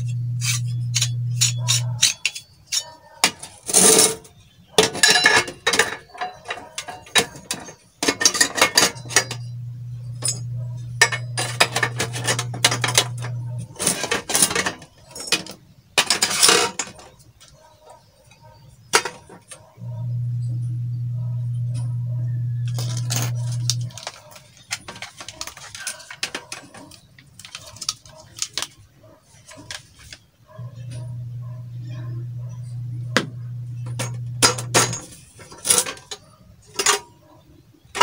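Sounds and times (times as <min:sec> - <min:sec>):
steady low hum: 0:00.0 - 0:02.1, 0:08.9 - 0:14.0, 0:19.8 - 0:23.9, 0:30.6 - 0:35.1
metal pipes clinking and clanking: 0:00.0 - 0:17.2, 0:21.4 - 0:28.7, 0:30.7 - 0:37.2.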